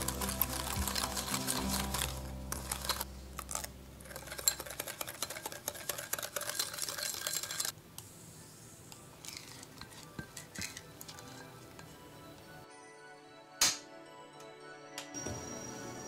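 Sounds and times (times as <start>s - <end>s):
whisk scraping a glass bowl: 0.0s - 7.7s, 9.2s - 11.6s.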